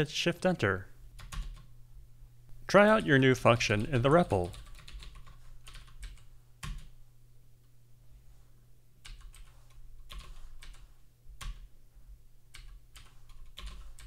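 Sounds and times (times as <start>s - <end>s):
keyboard typing: 1.2s - 1.7s, 3.6s - 6.9s, 9.0s - 11.7s, 12.5s - 14.0s.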